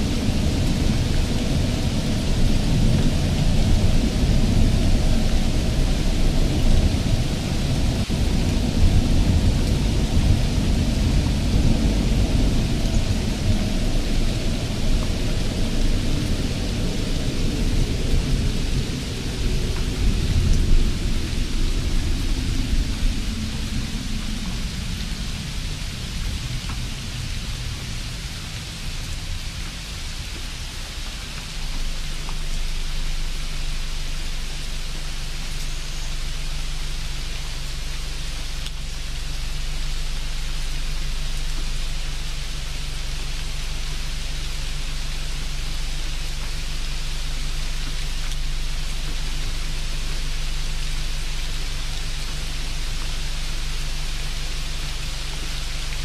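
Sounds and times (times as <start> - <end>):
low hum: 0.0 - 27.9
steady hiss: 0.0 - 56.0.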